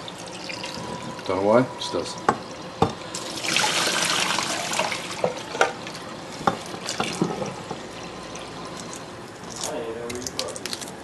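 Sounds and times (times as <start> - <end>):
tap water running into saucepan: 2.3 - 7.8.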